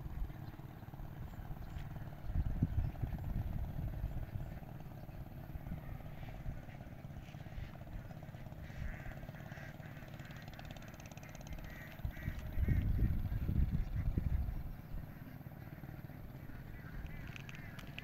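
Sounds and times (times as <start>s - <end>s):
wind buffeting microphone: 1.5s - 6.8s, 11.5s - 15.2s.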